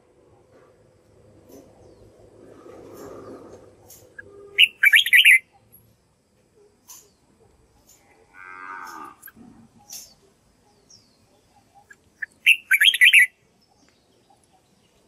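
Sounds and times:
bird singing bright notes: 0:04.1 - 0:05.6, 0:08.8 - 0:15.0
bird buzzy call: 0:11.8 - 0:13.3.

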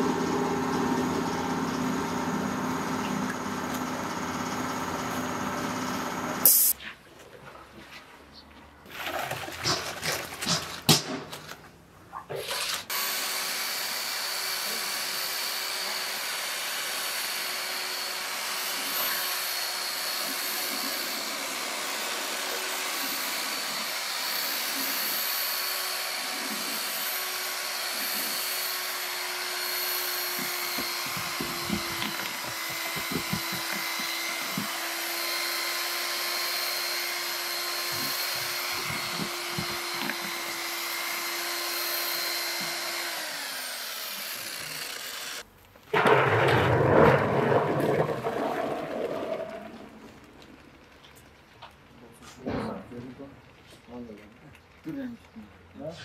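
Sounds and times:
electric drill with paddle mixer: 0:00.0 - 0:06.8, 0:12.5 - 0:45.5
liquid splashing and pouring: 0:08.9 - 0:10.5, 0:45.9 - 0:50.7
knocks: 0:30.4 - 0:34.8.

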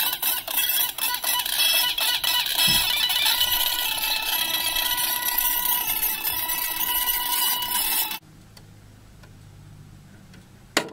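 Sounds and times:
record playing too fast: 0:00.0 - 0:08.2.

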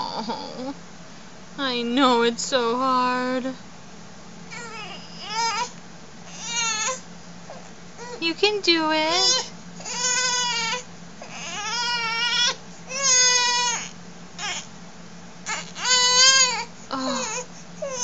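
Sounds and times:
baby crying in high-pitched wails: 0:04.5 - 0:05.7, 0:06.3 - 0:07.0, 0:09.1 - 0:14.7, 0:15.4 - 0:18.0.

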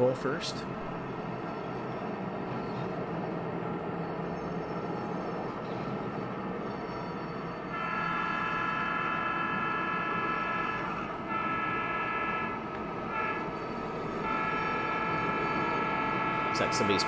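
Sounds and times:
model locomotive running: 0:00.0 - 0:17.0
model locomotive horn: 0:07.3 - 0:17.0.

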